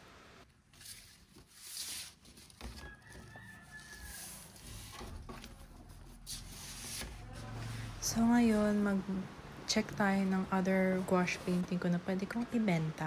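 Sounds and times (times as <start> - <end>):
paper envelope rustling and crinkling: 0.5 - 7.5.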